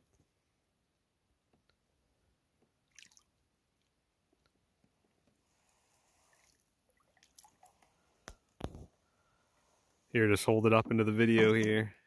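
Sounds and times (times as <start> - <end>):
faint water splashes: 2.8 - 4.0, 5.4 - 9.9.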